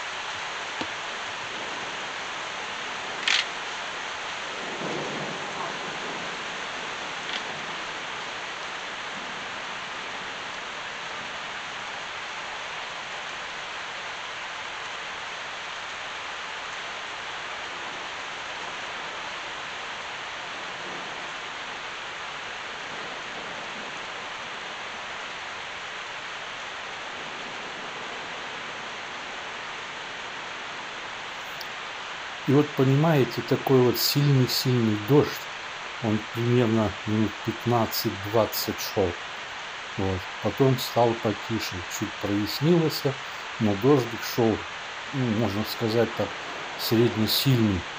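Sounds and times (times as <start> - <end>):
heavy rain pouring: 0.0 - 47.9.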